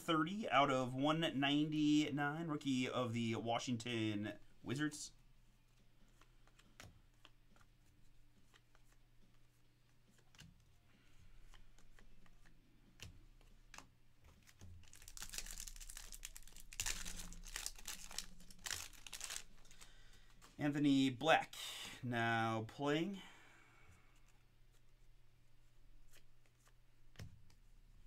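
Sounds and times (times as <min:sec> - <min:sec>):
cards being handled: 0:05.4 - 0:20.6, 0:24.2 - 0:28.0
card pack wrapper tearing: 0:14.8 - 0:19.9.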